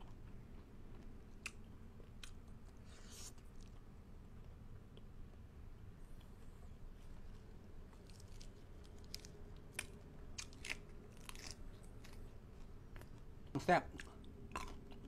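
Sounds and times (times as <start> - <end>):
person chewing: 0.0 - 3.9, 7.9 - 15.0
crisp crunches: 8.0 - 12.2.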